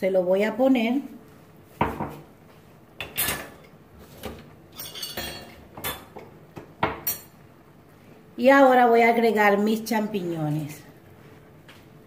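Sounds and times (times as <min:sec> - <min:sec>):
dishes and utensils clinking: 0:03.0 - 0:07.4.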